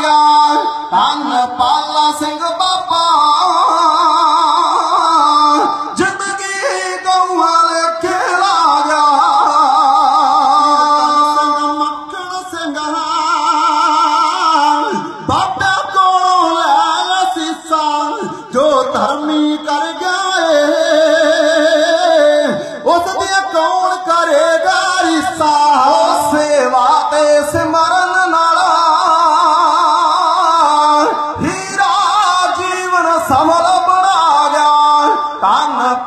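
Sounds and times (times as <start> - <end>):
man singing with vibrato: 0.0 - 36.0.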